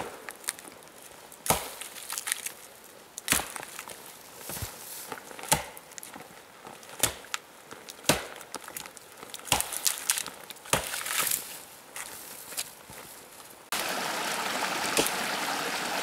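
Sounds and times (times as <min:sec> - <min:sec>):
wood crackling: 0:00.0 - 0:16.0
wood chopping knocks: 0:08.1 - 0:08.4.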